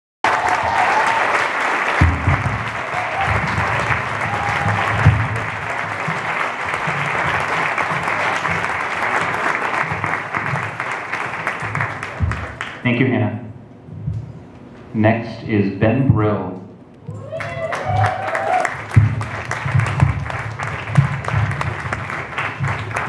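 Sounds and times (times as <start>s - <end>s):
audience applauding: 0.2s - 12.8s, 17.2s - 23.0s.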